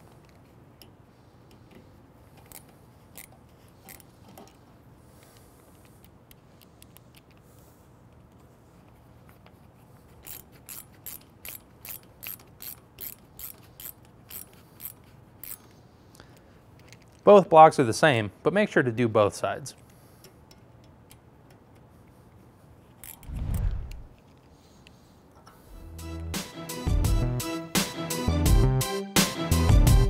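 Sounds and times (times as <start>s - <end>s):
ratcheting screwdriver clicking: 10.2s - 15.7s, 22.9s - 24.4s.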